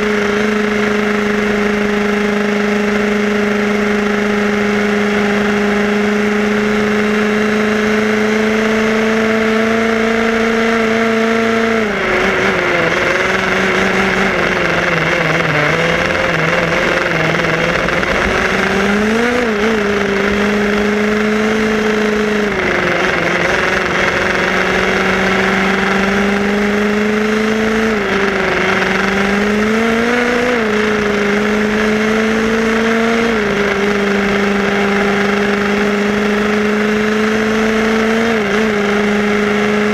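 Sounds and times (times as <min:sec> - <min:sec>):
two-stroke engine running: 0:00.0 - 0:39.9
wind and tyres rushing: 0:00.0 - 0:39.9.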